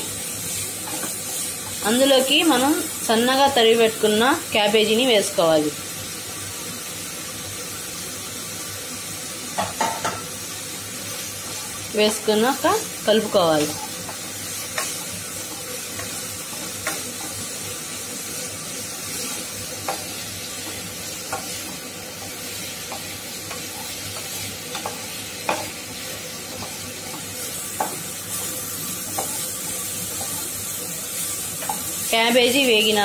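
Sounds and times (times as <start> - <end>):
vegetables sizzling in oil: 0.0 - 33.0
spatula knocking and scraping pan: 0.8 - 2.1, 9.6 - 10.3, 13.5 - 17.5, 19.2 - 32.1.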